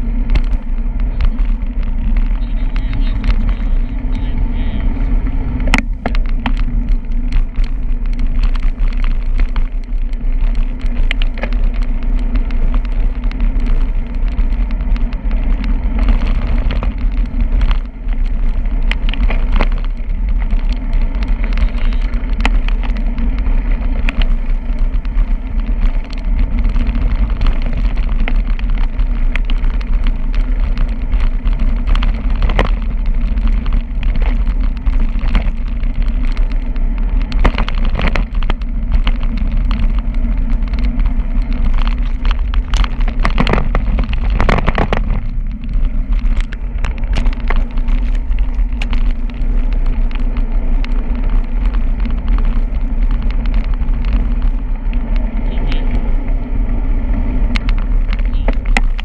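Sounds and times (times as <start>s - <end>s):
bicycle tyres on pavement: 0.0s - 59.0s
small clicks and rattles: 0.0s - 59.0s
wind buffeting microphone: 0.0s - 59.0s.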